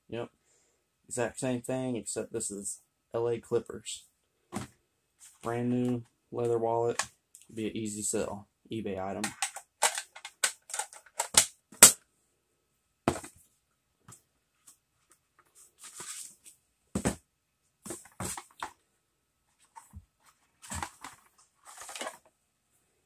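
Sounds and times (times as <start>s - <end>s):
hard box clicks and knocks: 13.1s - 13.4s, 17.0s - 17.2s, 20.6s - 22.2s
cardboard rustling: 14.6s - 17.2s, 17.8s - 18.8s, 19.5s - 22.3s.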